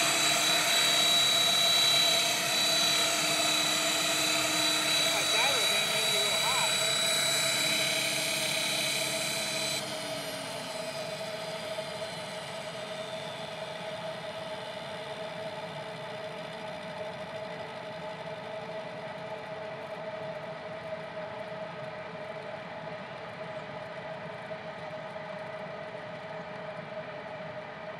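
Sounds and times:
rotor winding down: 0.0s - 13.5s
helicopter high whine: 0.0s - 14.4s
steady mechanical running sound: 0.0s - 27.5s.

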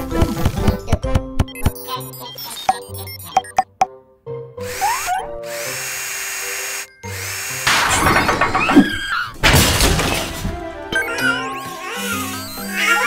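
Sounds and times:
cartoon cordless drill whirring: 4.6s - 9.2s, 10.9s - 13.0s
light background music: 9.5s - 13.0s.

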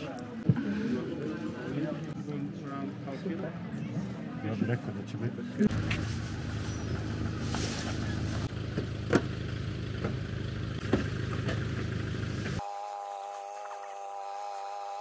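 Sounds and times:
engine idling: 5.7s - 12.6s.

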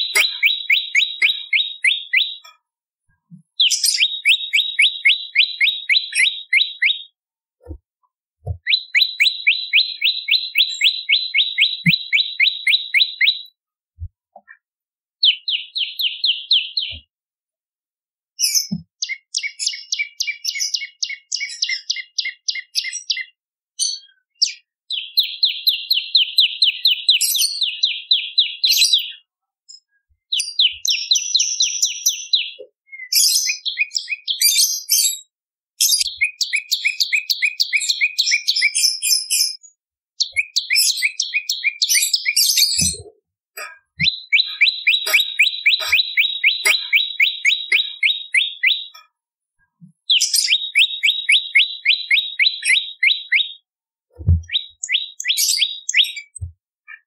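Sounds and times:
bird singing rapid trills: 0.0s - 2.5s, 3.6s - 7.1s, 8.6s - 13.4s, 43.6s - 49.0s, 50.1s - 53.6s.

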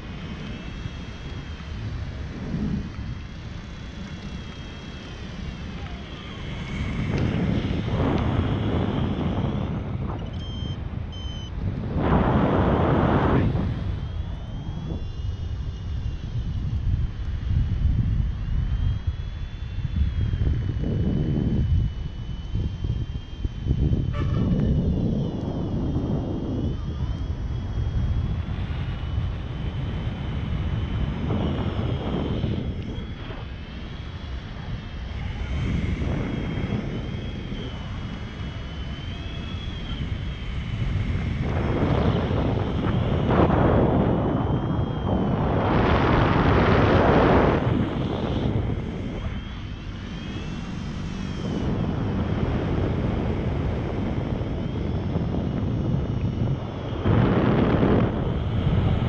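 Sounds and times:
wind buffeting microphone: 0.0s - 59.0s
faint high whistles: 8.6s - 11.6s, 31.3s - 41.0s
thin high whistle: 8.8s - 11.6s, 24.0s - 24.9s.

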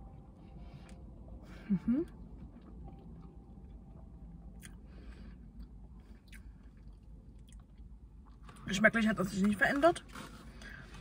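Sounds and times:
chewing with mouth closed: 2.0s - 8.6s.

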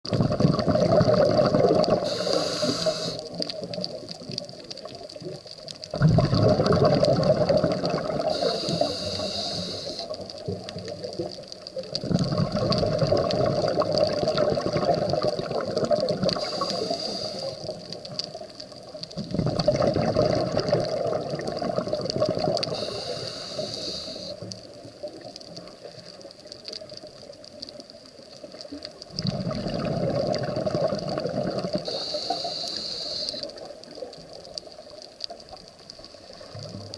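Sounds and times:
exhaled bubbles gurgling: 0.1s - 36.9s
regulator inhalation hissing: 2.0s - 3.4s, 8.2s - 10.3s, 16.3s - 17.8s, 22.7s - 24.5s, 31.8s - 33.7s.

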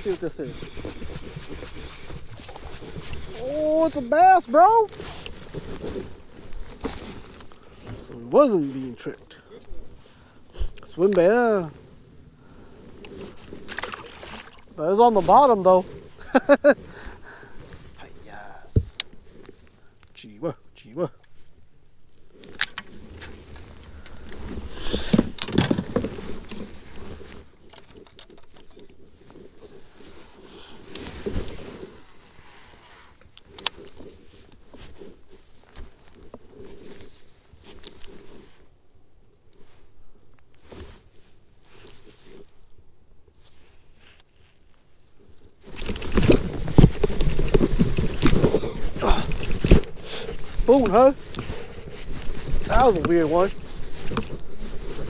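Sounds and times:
rustling and rumbling: 0.0s - 19.9s, 21.4s - 38.9s, 43.4s - 55.0s
fish splashing: 13.6s - 14.7s
clicks and knocks in plastic kayak: 22.4s - 29.5s, 45.6s - 55.0s.

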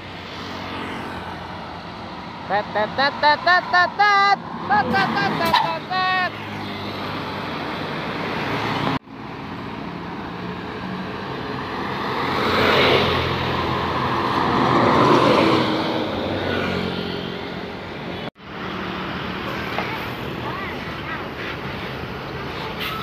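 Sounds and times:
buses driving past: 0.0s - 23.0s
motorcycles driving past: 0.1s - 1.8s, 11.8s - 17.6s.

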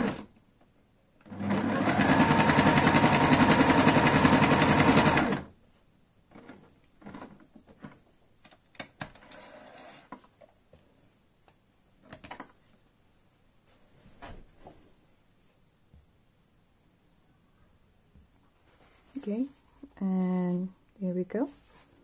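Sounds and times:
electric sewing machine running: 0.0s - 0.3s, 1.3s - 5.5s
fabric rustling: 18.4s - 19.9s, 21.4s - 22.0s.

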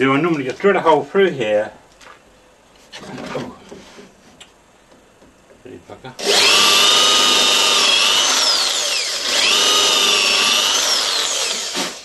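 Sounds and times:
electric drill boring wood: 6.2s - 12.0s.

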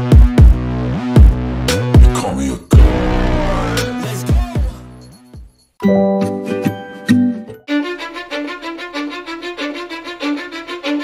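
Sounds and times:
background music: 0.1s - 11.0s
held pitched notes: 2.7s - 4.3s.

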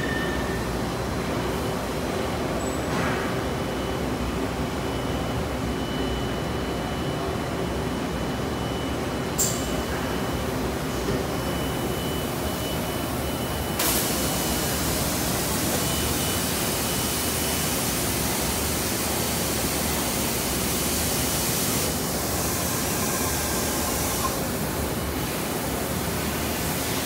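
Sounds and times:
machinery hiss and hum: 8.3s - 27.0s.

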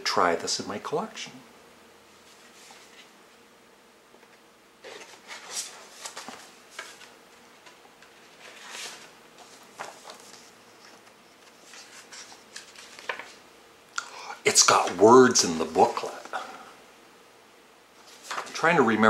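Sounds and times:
paper booklet rustling: 2.2s - 3.1s, 4.8s - 13.4s, 18.0s - 18.7s.

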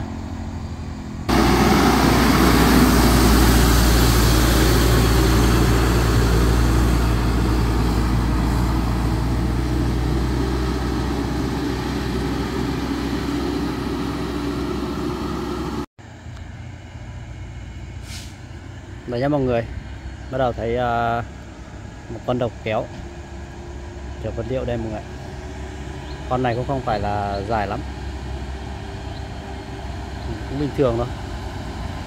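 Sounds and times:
truck diesel engine droning: 0.0s - 32.0s.

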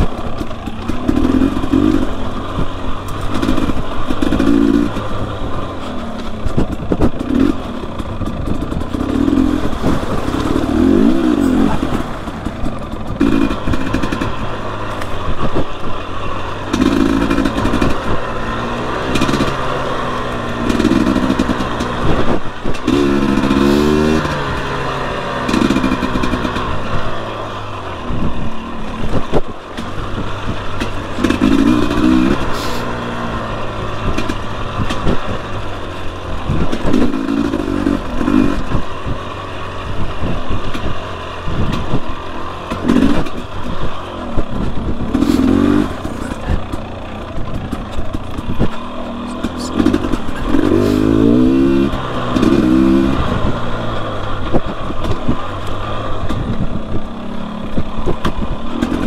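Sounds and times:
dirt bike engine revving: 0.0s - 59.0s
bike knocks and clatter: 5.8s - 15.7s, 57.8s - 59.0s.

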